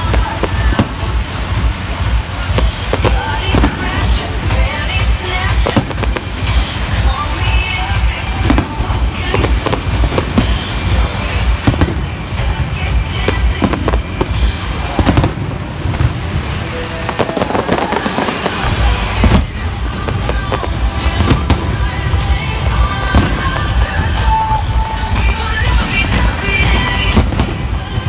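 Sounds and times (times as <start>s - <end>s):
firework bangs: 0.0s - 28.0s
firework crackling: 0.0s - 28.0s.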